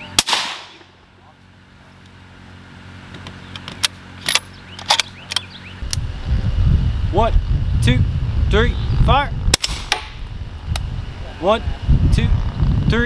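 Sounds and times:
suppressed rifle shot: 0:00.2 - 0:00.9.

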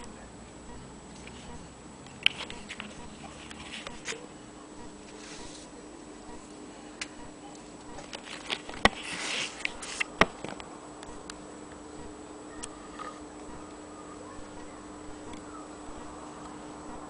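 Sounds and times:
short scraping rub: 0:08.9 - 0:10.1.

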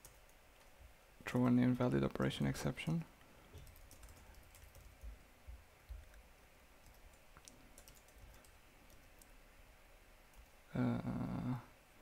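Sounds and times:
typing on computer keyboard: 0:03.6 - 0:05.1, 0:06.8 - 0:09.3.

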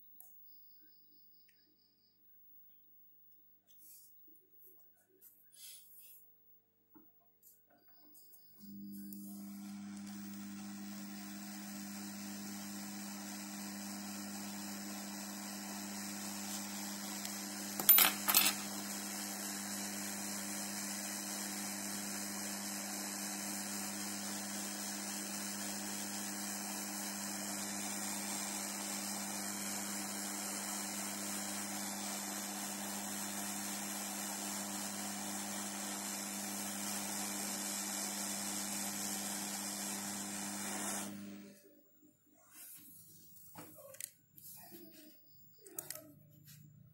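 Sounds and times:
hot air blower hissing: 0:08.6 - 0:41.6.

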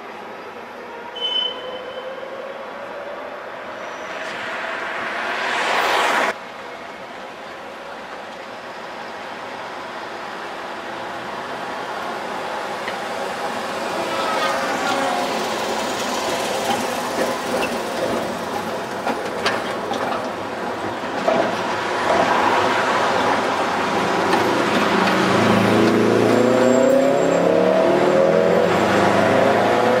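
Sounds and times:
tram rumble: 0:06.3 - 0:26.6
wheels clicking on rails: 0:12.8 - 0:26.0.

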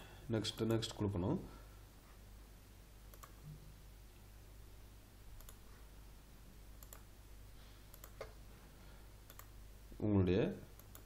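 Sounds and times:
low steady hum: 0:00.0 - 0:11.0
computer mouse clicks: 0:03.1 - 0:03.4, 0:05.4 - 0:05.6, 0:06.8 - 0:07.1, 0:07.9 - 0:08.4, 0:09.3 - 0:09.5, 0:10.8 - 0:11.0.

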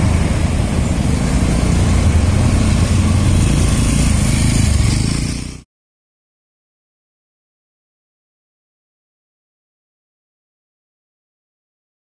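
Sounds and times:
traffic engine rumble: 0:00.0 - 0:05.6.

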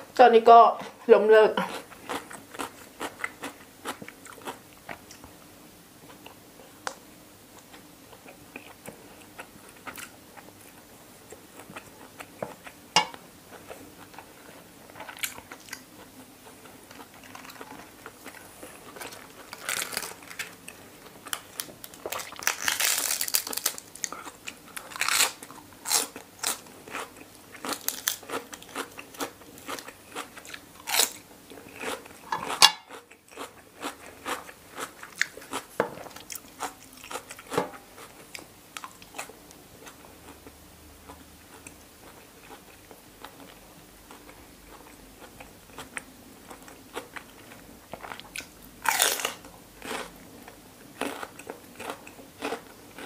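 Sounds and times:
crunchy chewing: 0:01.7 - 0:05.2, 0:13.5 - 0:53.0.

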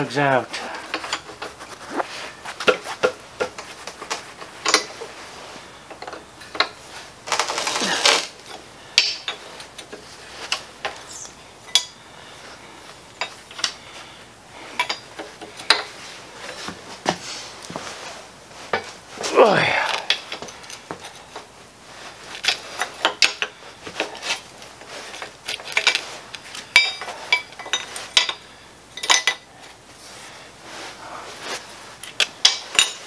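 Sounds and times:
wrench clinking on metal: 0:08.5 - 0:10.0, 0:11.7 - 0:12.0, 0:14.8 - 0:15.9, 0:26.7 - 0:28.4, 0:29.0 - 0:29.5, 0:32.0 - 0:33.0.

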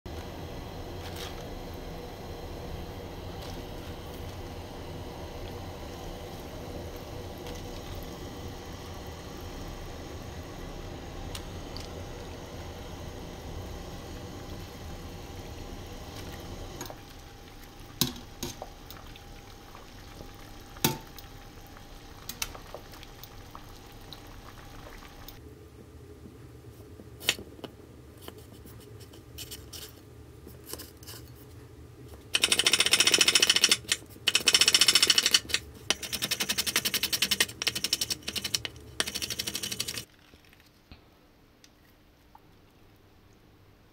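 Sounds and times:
water boiling in pot: 0:00.1 - 0:25.6, 0:34.2 - 0:40.9
faint hum: 0:00.1 - 0:43.9.

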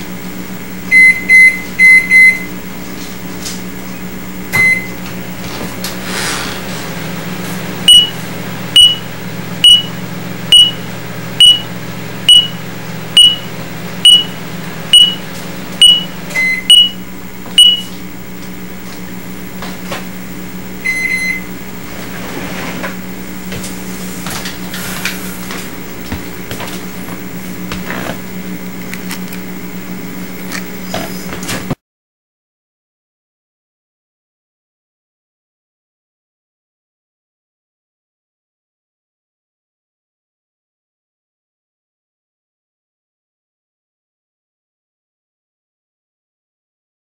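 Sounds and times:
microwave oven humming: 0:00.0 - 0:31.8
low long beep: 0:00.9 - 0:02.5, 0:04.6 - 0:04.9, 0:07.9 - 0:08.2, 0:08.8 - 0:11.7, 0:12.3 - 0:12.6, 0:13.2 - 0:15.2, 0:15.8 - 0:17.0, 0:17.6 - 0:18.0, 0:20.8 - 0:21.5
radar detector beeping: 0:00.9 - 0:02.5, 0:04.6 - 0:05.0, 0:07.9 - 0:08.2, 0:08.8 - 0:11.7, 0:12.3 - 0:12.6, 0:13.2 - 0:17.0, 0:17.6 - 0:18.0, 0:20.8 - 0:21.5.

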